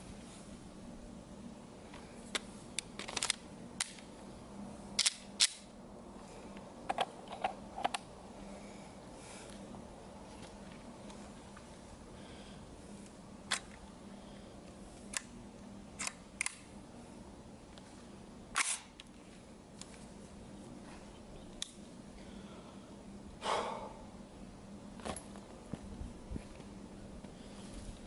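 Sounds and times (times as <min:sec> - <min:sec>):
faint steady hum: 0:00.0 - 0:28.0
metallic clicks and clacks of gun: 0:05.0 - 0:05.7.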